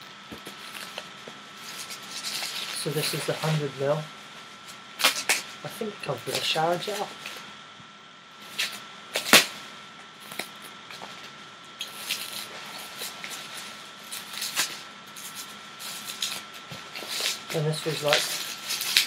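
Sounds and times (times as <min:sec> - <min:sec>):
bubble wrap crinkling and crackling: 0:00.2 - 0:07.4, 0:10.1 - 0:19.0.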